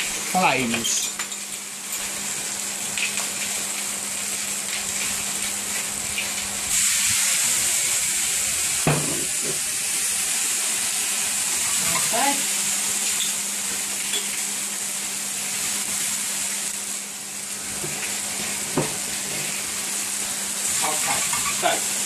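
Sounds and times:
chicken sizzling in frying pan: 0.0 - 22.0.

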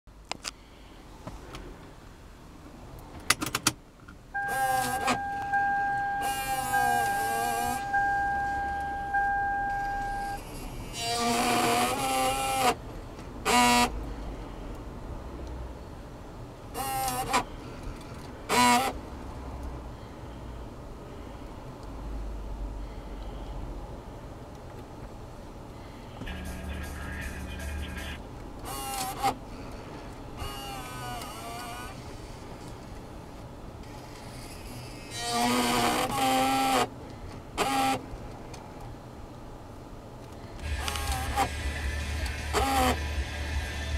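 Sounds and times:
car warning chime: 4.4 - 10.4
fm radio sound: 26.2 - 28.3
cd changer motors whirring: 40.6 - 43.0.

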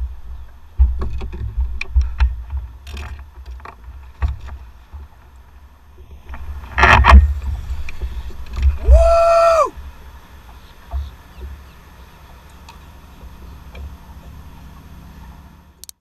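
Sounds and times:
wind rumbling on microphone: 0.0 - 15.5
clicks and knocks on boat deck: 0.7 - 5.4.

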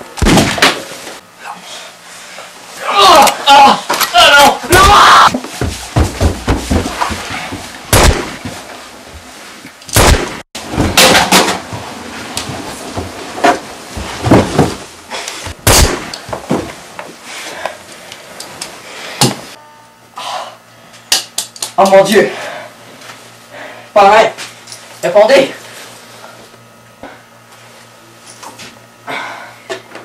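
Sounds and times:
loud sharp bangs and thuds: 0.2 - 0.8, 7.9 - 8.5, 10.0 - 11.6, 15.6 - 16.1.

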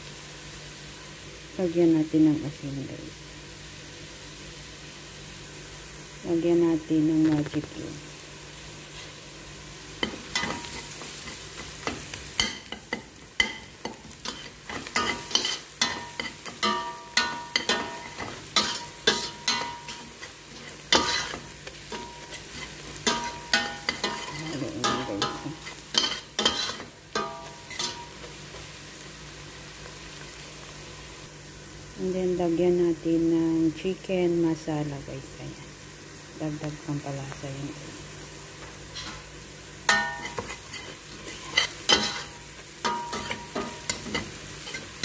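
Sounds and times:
onions sizzling in oil: 0.0 - 45.0
utensil scraping metal pot: 14.2 - 28.0.

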